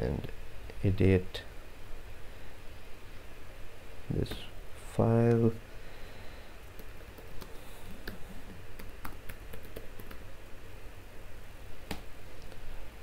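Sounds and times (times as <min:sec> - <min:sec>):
low steady hum: 0:00.0 - 0:13.0
keyboard typing: 0:06.8 - 0:10.3.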